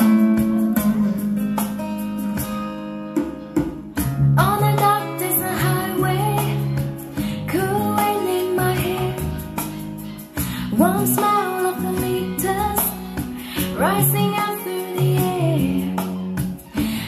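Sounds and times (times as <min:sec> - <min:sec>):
guitar and bass: 0:00.0 - 0:17.0
woman singing: 0:04.3 - 0:17.0.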